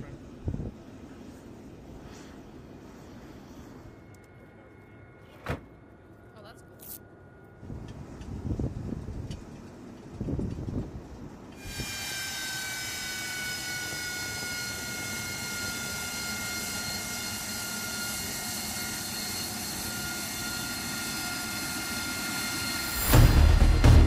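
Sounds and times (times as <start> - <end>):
jet turbine whine: 0.0 - 24.0
loud background music: 23.0 - 24.0.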